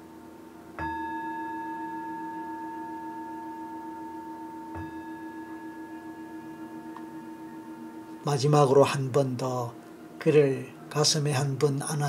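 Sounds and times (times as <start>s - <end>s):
ambient background music drone: 0.0s - 12.0s.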